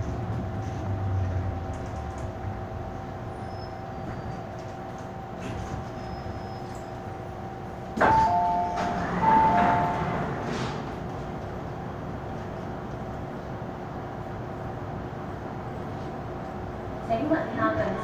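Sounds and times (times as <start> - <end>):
train electrical hum: 0.0 - 18.0
train door release clunk: 7.9 - 11.2
sliding doors opening: 7.9 - 11.6.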